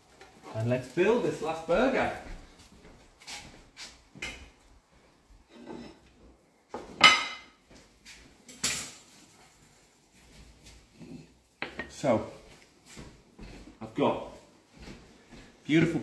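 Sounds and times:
dishes clinking: 0:07.0 - 0:07.6, 0:11.6 - 0:12.0.

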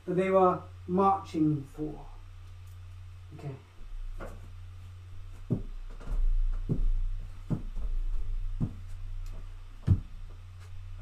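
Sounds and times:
low electrical hum: 0:00.0 - 0:11.0
dull knocks: 0:05.4 - 0:09.0, 0:09.8 - 0:10.1.

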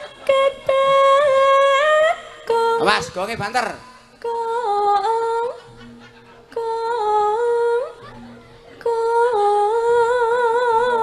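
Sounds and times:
woman singing long held notes: 0:06.5 - 0:11.0.

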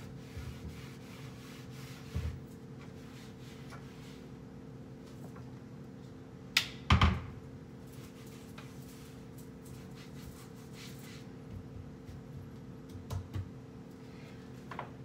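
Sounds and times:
cloth rubbing on cabinets: 0:00.0 - 0:04.4.

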